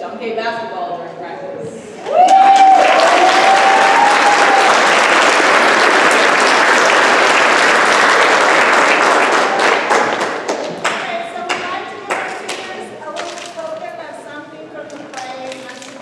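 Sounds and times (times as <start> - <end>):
person cheering: 2.0 - 4.9
audience applauding: 2.0 - 13.5.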